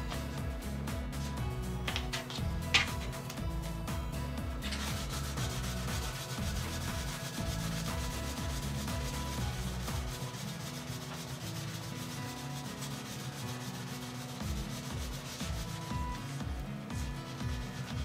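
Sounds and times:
sandpaper sanding leather edge: 4.6s - 18.0s.

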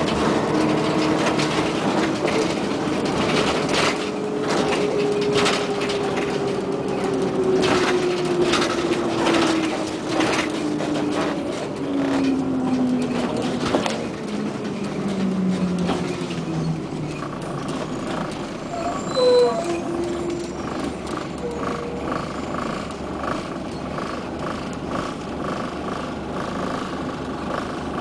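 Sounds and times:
rattles and knocks: 0.0s - 18.7s
drivetrain whine: 0.0s - 28.0s
moving bus rumble: 0.0s - 28.0s.

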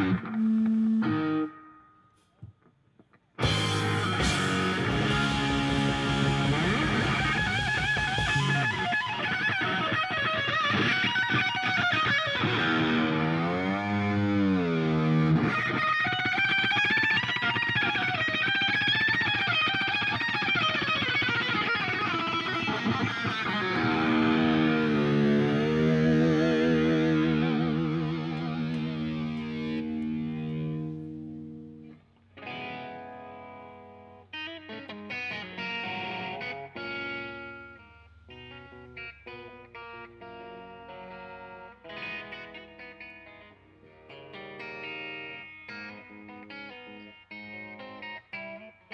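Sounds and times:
distorted electric guitar solo: 0.0s - 2.3s, 3.1s - 48.9s
drums and cymbals: 3.4s - 8.7s.

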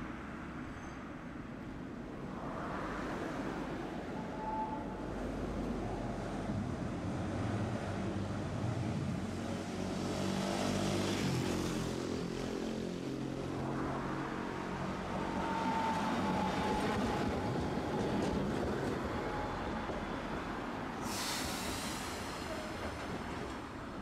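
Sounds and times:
road traffic passing: 1.3s - 24.0s
tram rolling in: 13.2s - 24.0s.

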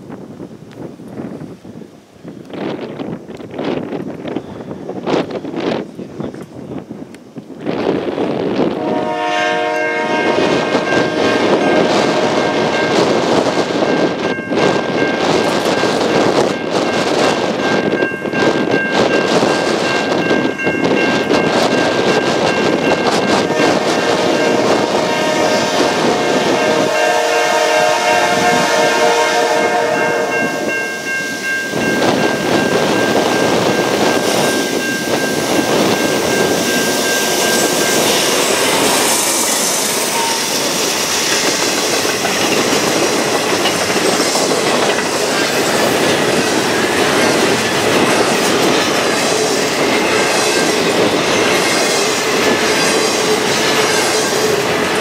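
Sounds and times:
diesel locomotive passing: 2.0s - 55.0s
train air horn: 8.7s - 13.1s, 23.3s - 31.2s, 37.5s - 40.8s
train wheels clickety-clack: 10.4s - 26.9s, 31.7s - 55.0s.

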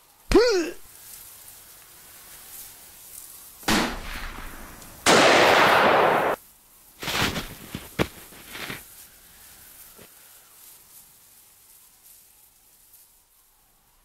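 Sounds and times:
gunfire: 3.7s - 6.4s.

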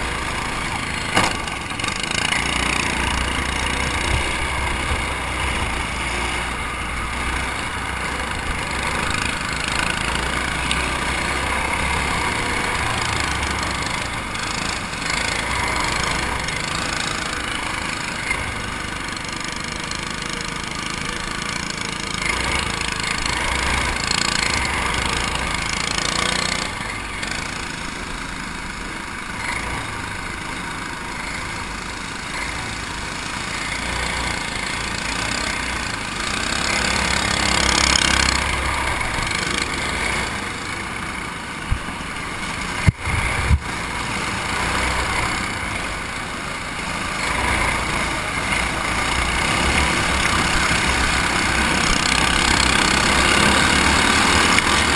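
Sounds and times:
other kart engines: 0.0s - 54.9s
racing kart engine roaring: 0.0s - 54.9s
sharp knocks: 1.1s - 1.6s.

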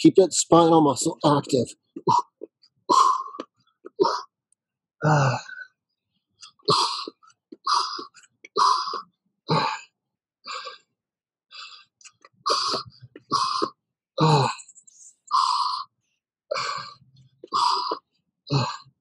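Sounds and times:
man breathing hard: 2.9s - 3.4s, 6.7s - 9.0s, 11.5s - 11.9s, 12.5s - 14.6s, 16.5s - 18.8s
man grunting: 5.0s - 5.6s, 14.2s - 14.6s, 18.5s - 18.7s.

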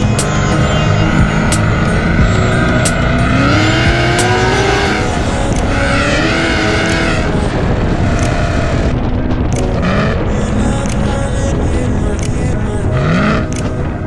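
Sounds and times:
car engine accelerating hard: 0.0s - 9.2s, 9.8s - 10.3s, 13.0s - 13.6s.

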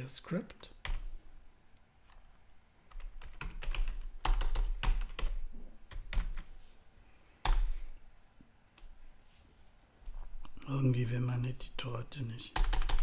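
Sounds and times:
computer keyboard typing: 2.9s - 6.4s, 7.4s - 7.7s, 12.5s - 13.0s.

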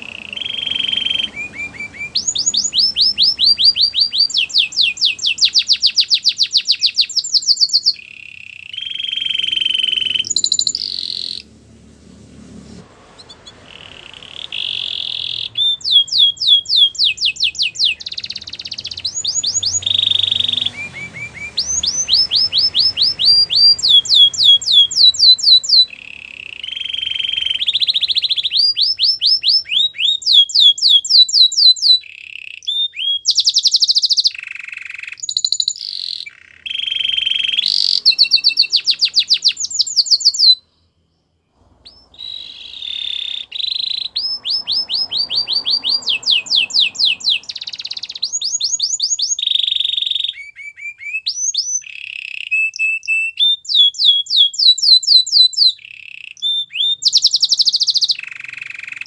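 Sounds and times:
canary singing trills and whistles: 0.0s - 11.5s, 13.1s - 59.0s.

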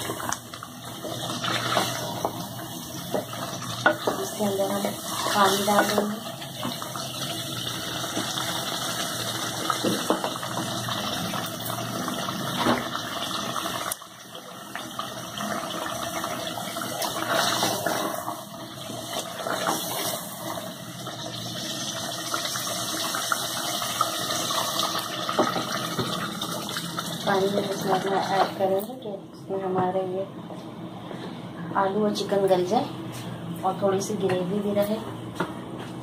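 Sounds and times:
pot of curry hissing: 0.0s - 9.8s, 15.0s - 27.1s.

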